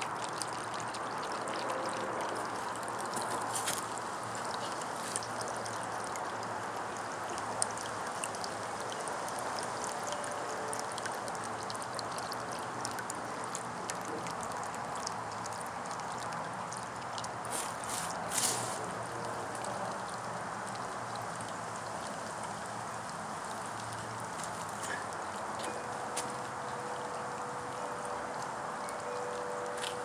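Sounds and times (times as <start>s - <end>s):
fountain water trickling: 0.0s - 30.0s.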